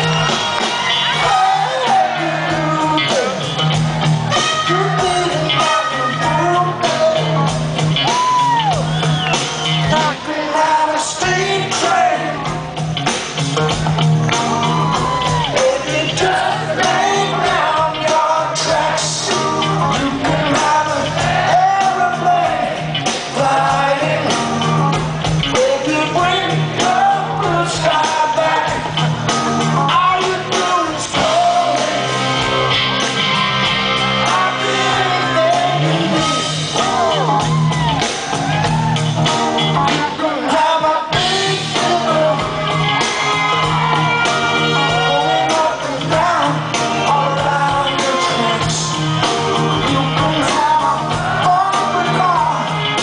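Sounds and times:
bass guitar line: 0:00.0 - 0:53.0
live rock band playing: 0:00.0 - 0:53.0
man singing and shouting: 0:01.2 - 0:03.6, 0:04.4 - 0:08.5, 0:09.8 - 0:12.6, 0:15.3 - 0:29.0, 0:29.8 - 0:32.1, 0:34.2 - 0:37.4, 0:39.8 - 0:42.8, 0:44.6 - 0:53.0.

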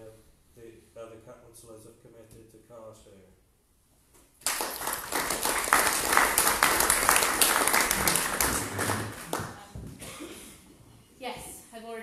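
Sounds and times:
audience applauding: 0:04.4 - 0:09.7.

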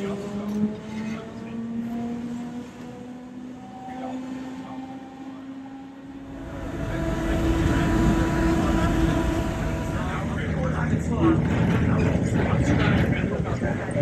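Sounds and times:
electric tram motor whine: 0:00.0 - 0:12.6
low rumble: 0:06.1 - 0:14.0
deep rumble with hum: 0:06.2 - 0:14.0.

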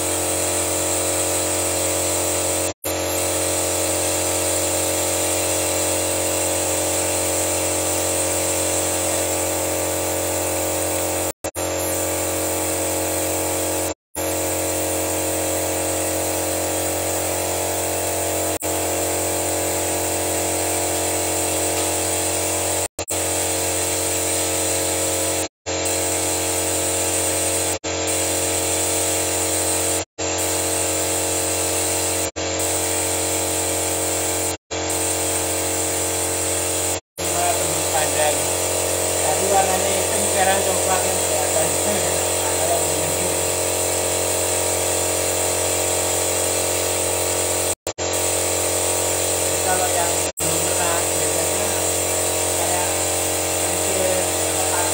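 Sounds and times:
motor humming: 0:02.0 - 0:24.9, 0:35.1 - 0:44.8, 0:48.0 - 0:54.9.

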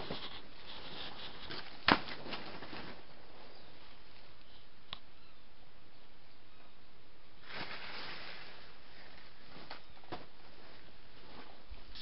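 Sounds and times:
leaves and grass rustling: 0:07.4 - 0:12.0.

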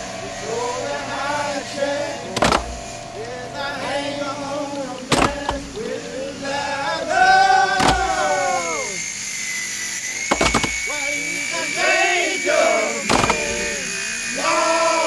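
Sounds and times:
song with singing voice: 0:00.0 - 0:09.0
sharp percussive hits: 0:02.3 - 0:03.2.

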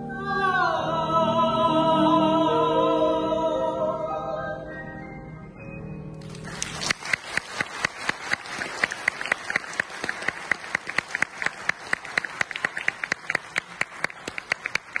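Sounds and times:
audience applauding: 0:06.2 - 0:15.0
close hand claps: 0:06.2 - 0:15.0.

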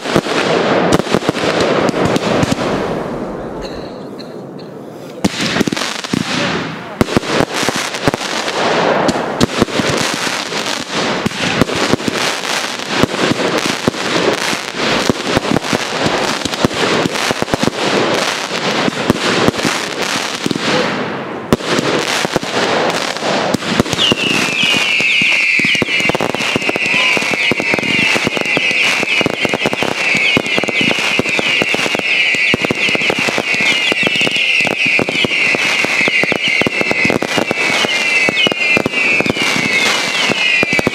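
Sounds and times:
fireworks bangs and crackling: 0:00.0 - 0:40.9
shrill firework whistling: 0:23.8 - 0:40.9.

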